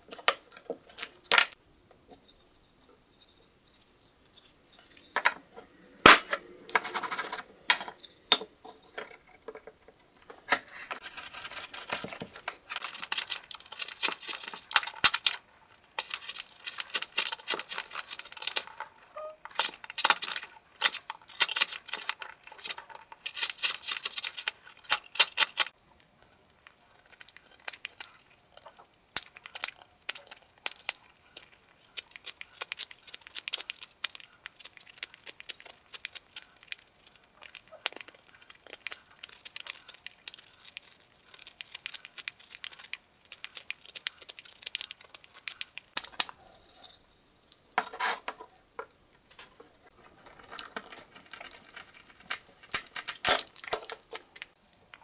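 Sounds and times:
knife scraping wood: 10.5s - 13.3s, 47.8s - 48.4s.

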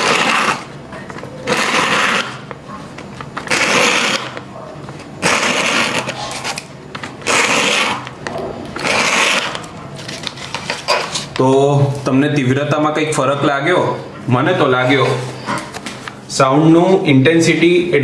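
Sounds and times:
needle scratching sandpaper: 0.0s - 0.7s, 1.5s - 2.5s, 3.4s - 4.4s, 5.2s - 6.6s, 7.2s - 8.1s, 8.8s - 9.7s.

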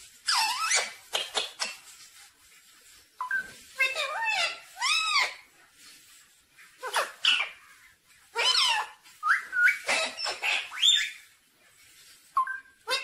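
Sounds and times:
parakeet squawking calls: 6.8s - 11.3s.

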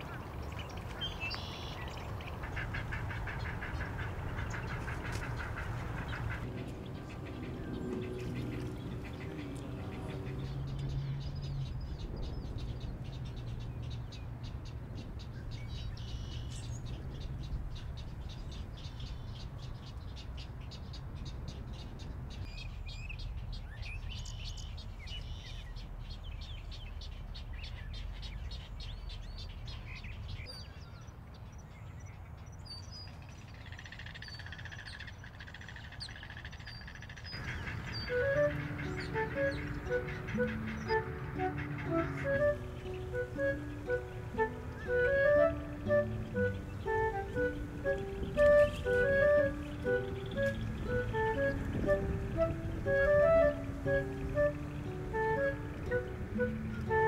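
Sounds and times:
low outdoor rumble: 0.0s - 19.8s, 37.3s - 57.0s
rapid high bird chirps: 0.7s - 14.0s
sliding whistled bird calls: 37.4s - 57.0s.

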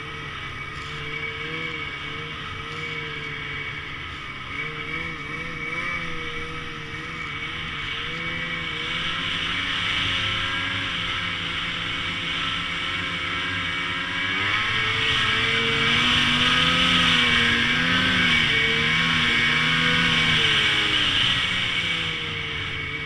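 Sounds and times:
snowmobile engine running: 0.0s - 23.0s.

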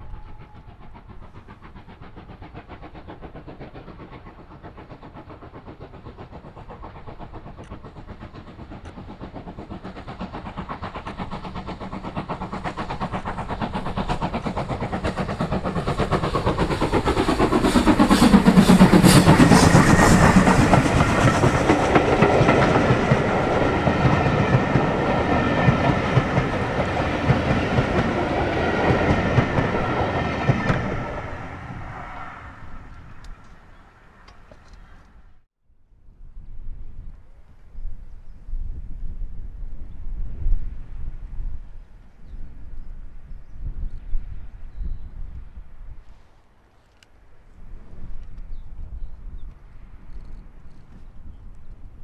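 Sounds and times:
steam locomotive exhaust beats: 0.0s - 35.2s
coaches rolling on rails: 0.0s - 35.3s.

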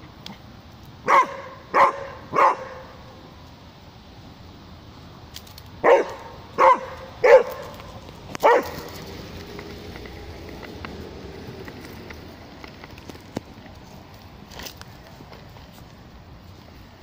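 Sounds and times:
dog barking: 1.1s - 2.9s, 5.8s - 7.8s, 8.4s - 8.9s.

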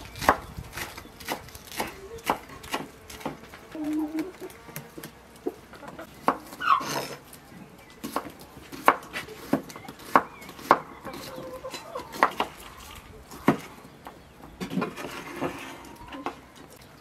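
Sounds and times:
knife chopping on wooden board: 8.0s - 11.2s.

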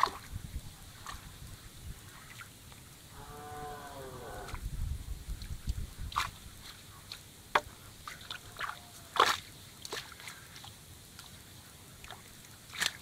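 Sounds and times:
splashes of muddy water: 0.0s - 1.4s, 5.3s - 13.0s.

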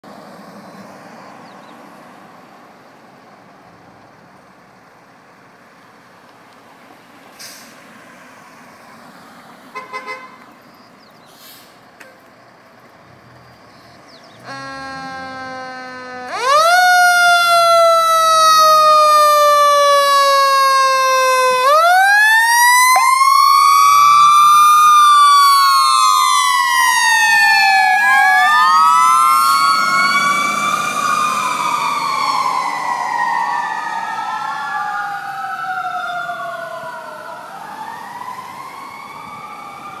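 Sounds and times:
fire engine sirens wailing: 14.4s - 40.0s.

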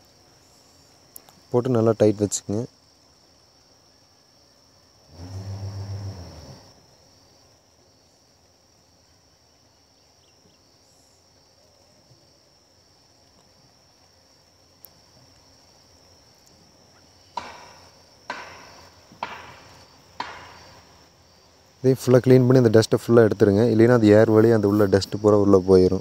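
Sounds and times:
insect drone: 0.0s - 26.0s
sharp knocks on hard part: 17.4s - 20.7s.

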